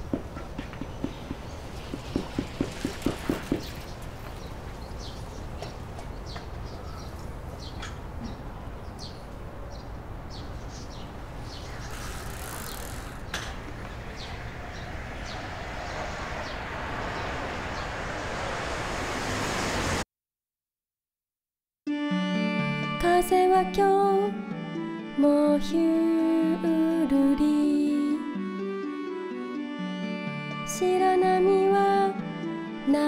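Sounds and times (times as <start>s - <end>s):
small birds chirping: 0.0s - 18.4s
rising rush of noise: 12.3s - 20.1s
low rumble: 13.7s - 20.0s.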